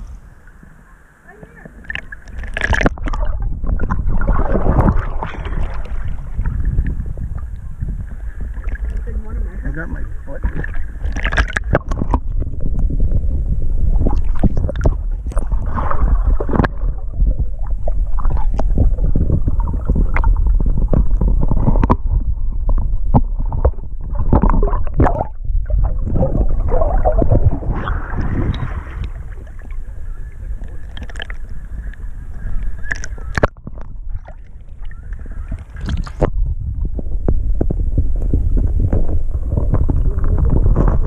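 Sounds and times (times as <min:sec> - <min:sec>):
low rumble: 0:00.0 - 0:41.0
water sloshing and gurgling: 0:00.0 - 0:41.0
small splashes and knocks: 0:01.8 - 0:06.2.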